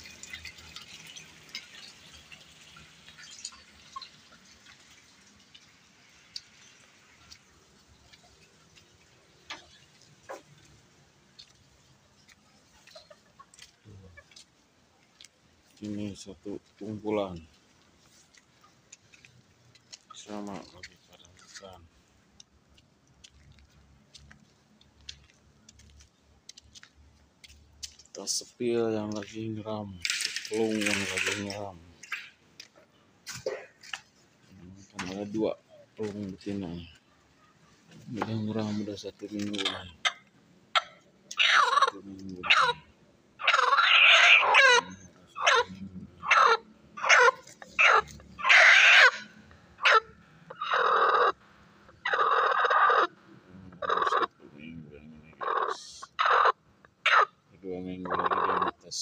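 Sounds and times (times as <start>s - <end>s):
water dripping: 0.0s - 37.0s
chickens pecking on concrete: 45.4s - 49.2s, 53.7s - 54.4s, 55.4s - 57.3s.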